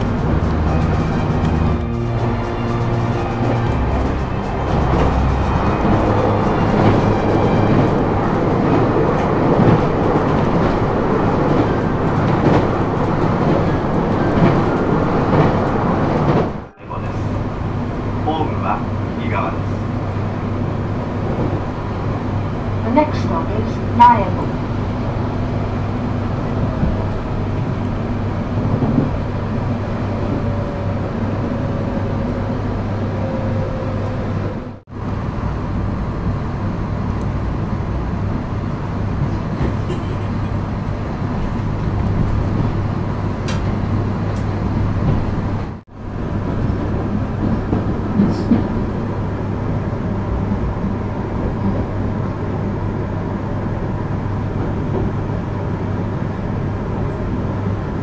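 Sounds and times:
train rumble and hum: 0.0 - 58.0.

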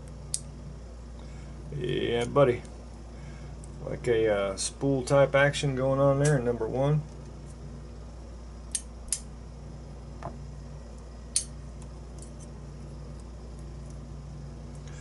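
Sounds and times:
steady low hum: 0.0 - 15.0
metallic tweezer clicks: 8.7 - 9.3, 11.3 - 11.5.

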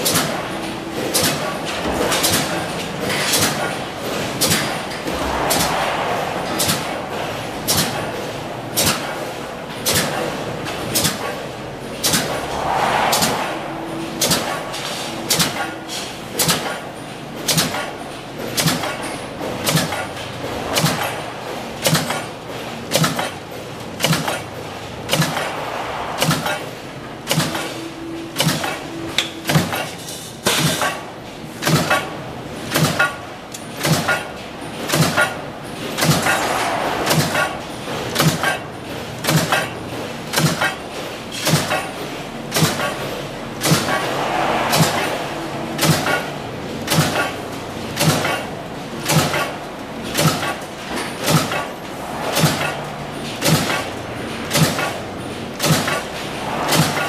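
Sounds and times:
machine hum: 0.0 - 29.5, 34.4 - 41.2, 42.0 - 57.0
stamping press metallic bangs: 14.2 - 25.6, 31.6 - 32.1, 32.7 - 57.0.

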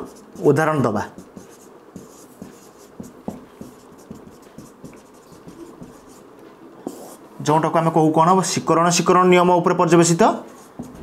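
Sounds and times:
marker scratching on whiteboard: 0.0 - 7.2, 10.3 - 11.0.

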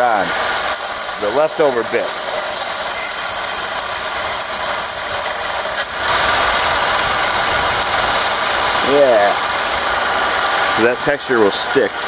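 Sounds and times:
steel grinding on abrasive belt: 0.0 - 6.2
belt grinder motor running: 0.4 - 5.9.

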